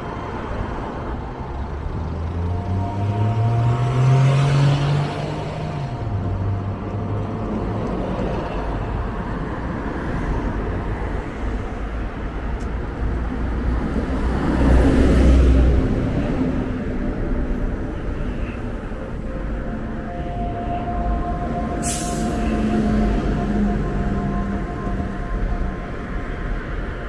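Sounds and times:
rumble of passing cars: 0.0 - 27.0
louder vehicle passing: 1.6 - 10.8.

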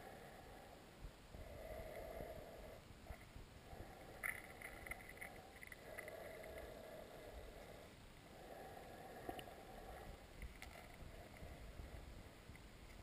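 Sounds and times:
faint clicks: 4.0 - 6.8, 9.1 - 13.0.

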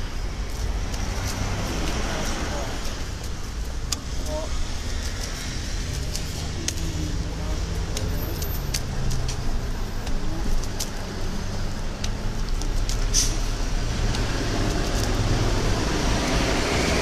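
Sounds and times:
traffic engine rumble: 0.0 - 17.0
short hiss: 13.1 - 13.4.

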